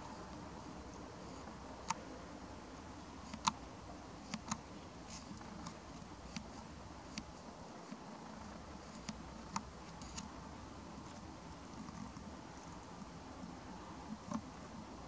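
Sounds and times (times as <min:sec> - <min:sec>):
faint steady hiss: 0:00.0 - 0:15.0
small sharp clicks: 0:03.2 - 0:03.6.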